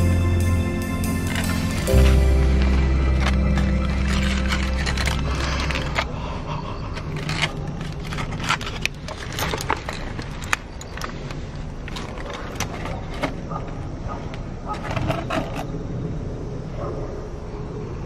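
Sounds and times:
aluminium foil crinkling: 1.4s - 6.2s, 6.8s - 13.6s.

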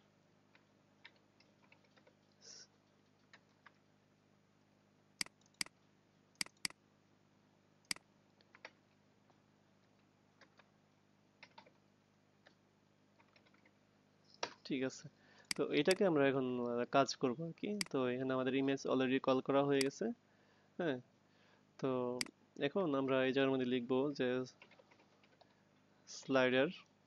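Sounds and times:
faint steady hum: 0.0s - 27.0s
mouse and keyboard clicks: 5.2s - 5.8s, 6.4s - 6.8s, 15.5s - 16.0s.

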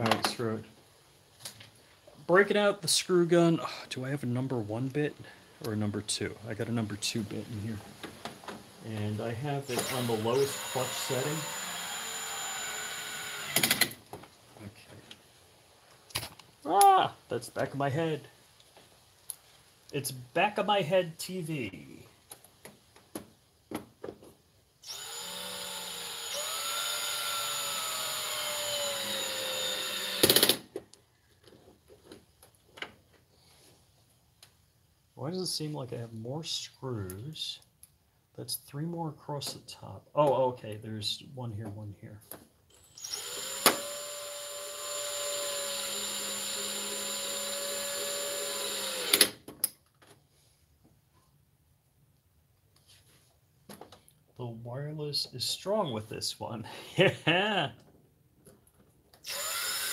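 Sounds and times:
screw gun motor whine: 9.6s - 13.9s, 24.8s - 30.6s, 42.7s - 49.4s, 59.2s - 59.9s.

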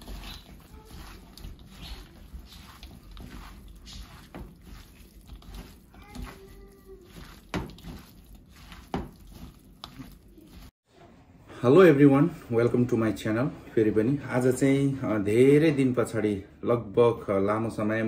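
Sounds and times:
hands squishing food in bowl: 0.0s - 10.8s.

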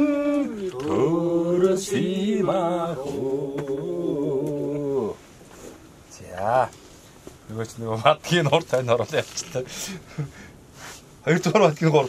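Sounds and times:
person singing folk song: 0.0s - 5.2s.

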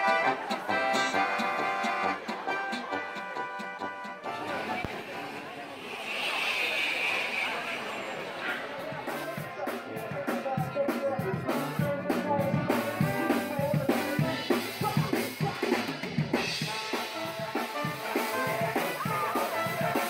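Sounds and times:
drum kit beat: 0.0s - 4.8s, 8.9s - 20.0s
tuba and horns: 0.0s - 8.0s, 11.5s - 20.0s
street band playing: 0.0s - 20.0s.

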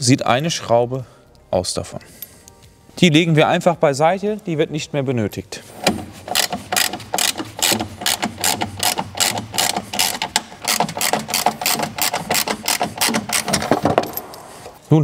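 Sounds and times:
hand ratchet clicking: 5.8s - 14.4s.

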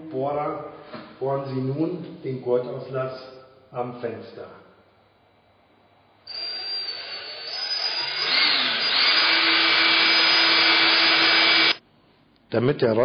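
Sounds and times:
cordless drill boring wood: 6.3s - 11.8s.

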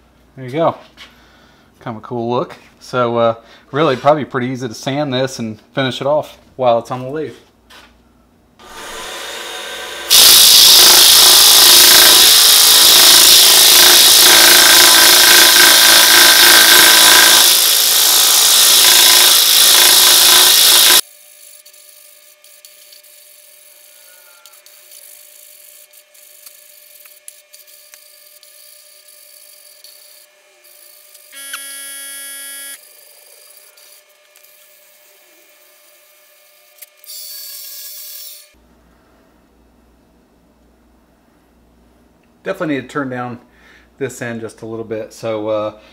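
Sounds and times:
sandpaper hissing on spinning wood: 8.7s - 31.3s
brief tone: 31.3s - 32.8s
faint hum: 38.6s - 42.4s.

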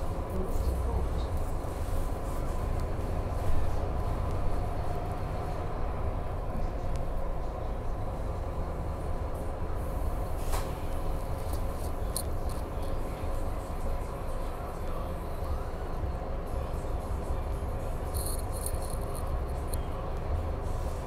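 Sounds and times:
bus engine and road rumble: 0.0s - 21.0s.

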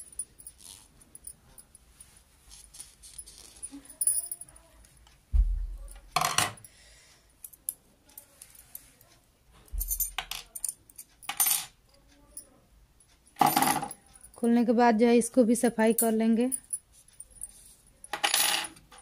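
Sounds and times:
low thump: 5.3s - 5.9s.

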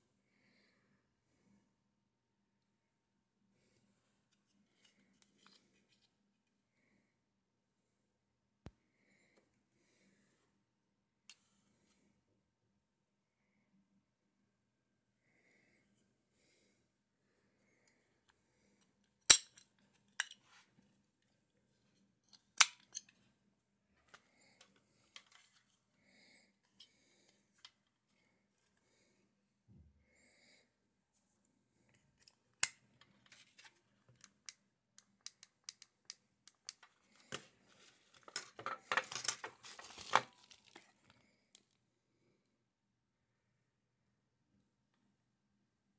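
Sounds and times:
plastic clicks and snaps: 34.2s - 37.4s
plastic bag crinkling: 38.9s - 41.1s.

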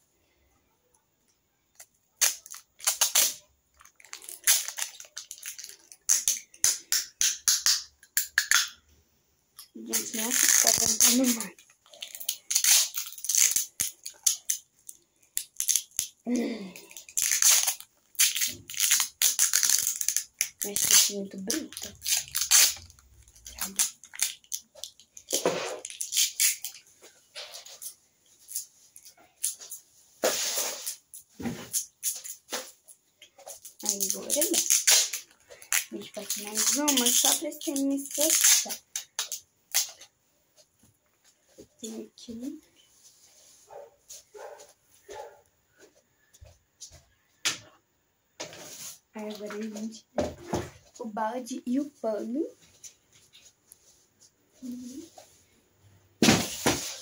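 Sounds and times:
adhesive tape tearing off roll: 1.8s - 8.8s, 9.9s - 14.7s, 17.0s - 26.8s, 30.2s - 32.8s, 33.6s - 40.0s.

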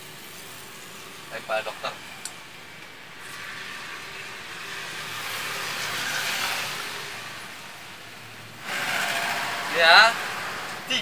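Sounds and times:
vehicle passing: 3.2s - 11.0s.

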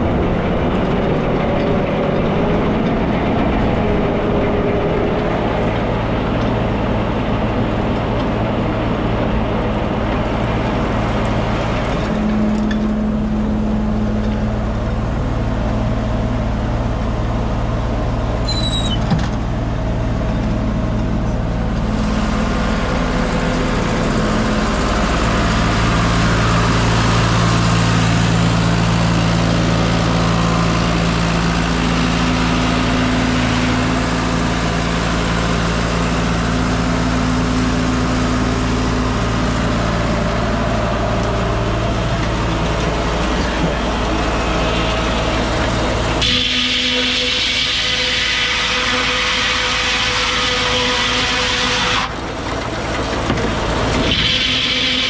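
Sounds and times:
tractor engine running: 0.0s - 55.0s
high squeak: 18.4s - 19.2s.

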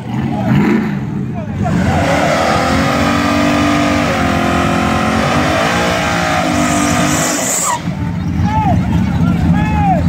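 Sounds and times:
race car engine revving: 0.0s - 9.7s
spinning tyres hissing: 1.9s - 8.1s.

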